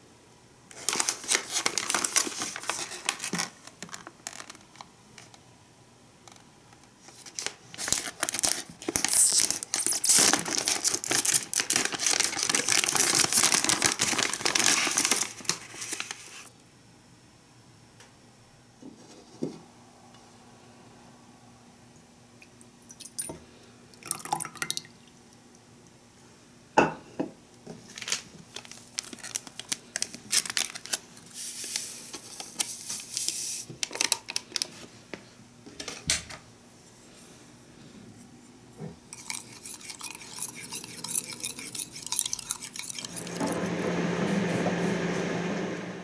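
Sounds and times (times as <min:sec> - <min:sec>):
sachet tearing: 0:00.7 - 0:04.6, 0:07.2 - 0:16.5, 0:27.9 - 0:34.7
microwave oven humming: 0:43.0 - 0:46.0.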